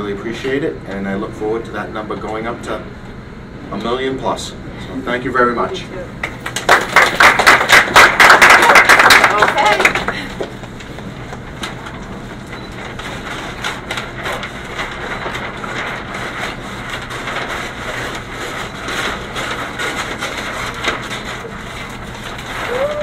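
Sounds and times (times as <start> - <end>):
paper rustling and crinkling: 9.3 - 23.0
scissors cutting paper: 12.9 - 22.9.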